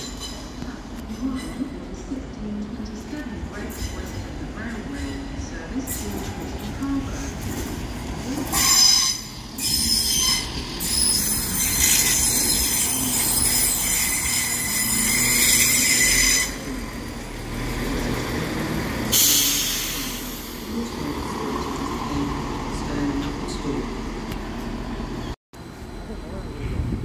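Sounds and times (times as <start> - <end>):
train wheels squealing on rails: 0.0 - 1.8, 3.7 - 6.4, 8.4 - 16.9, 19.1 - 20.6.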